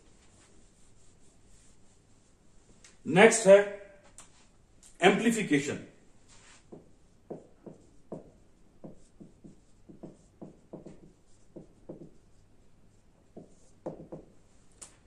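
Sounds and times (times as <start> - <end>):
marker squeaking on whiteboard: 6.6 - 14.4.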